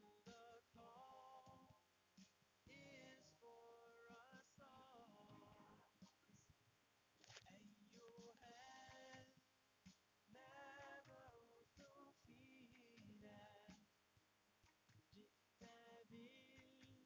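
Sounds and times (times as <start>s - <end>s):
faint person singing: 0.0s - 1.8s, 2.7s - 6.0s, 7.3s - 9.4s, 10.3s - 13.9s, 15.1s - 17.0s.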